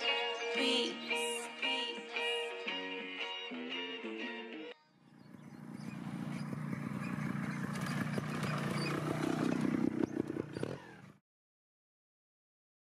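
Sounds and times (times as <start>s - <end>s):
motorcycle engine revving: 5.0s - 11.2s.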